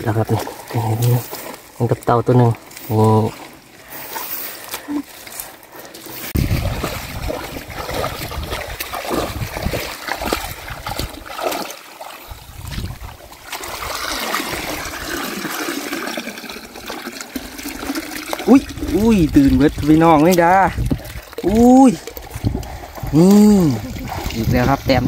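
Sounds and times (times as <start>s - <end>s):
water splashing and trickling: 0.0s - 25.0s
water draining through mesh: 6.1s - 25.0s.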